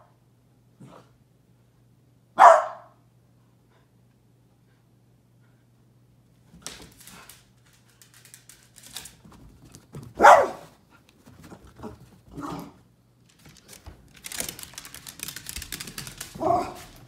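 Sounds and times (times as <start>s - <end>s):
dog barking: 2.4s - 3.0s, 10.2s - 10.7s.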